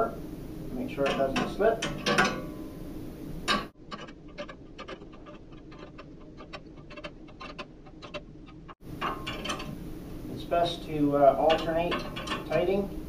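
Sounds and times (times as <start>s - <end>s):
wrench tightening nuts: 3.5s - 9.8s, 11.4s - 12.8s.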